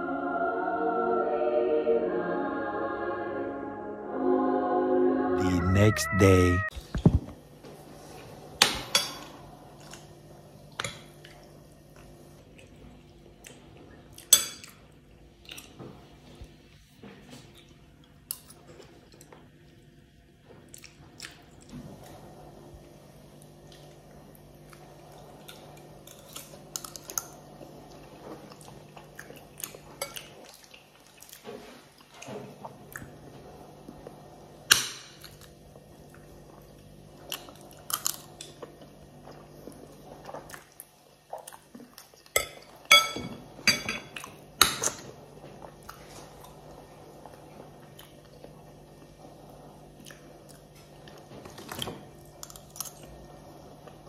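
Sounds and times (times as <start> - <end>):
chewing: 20.6 - 21.7, 24.7 - 33.2, 35.3 - 42.3, 45.6 - 48.6, 50.0 - 51.3, 52.4 - 53.2.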